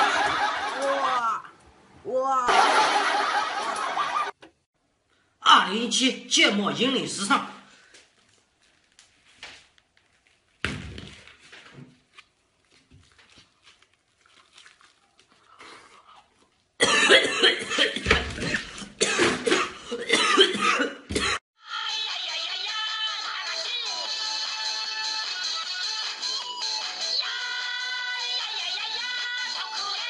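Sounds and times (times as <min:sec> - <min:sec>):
music: 0:21.6 - 0:30.0.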